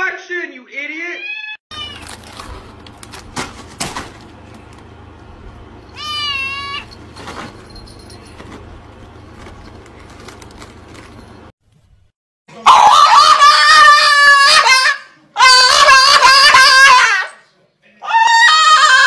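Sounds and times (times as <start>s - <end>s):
cat meowing: 1.2s - 2.3s, 6.0s - 6.9s
dog yowling whine-howl: 12.6s - 17.3s, 18.1s - 19.0s.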